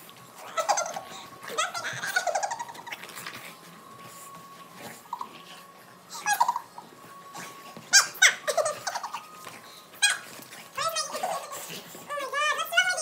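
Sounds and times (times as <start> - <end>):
dogs play-growling and yelping: 0.0 - 12.1.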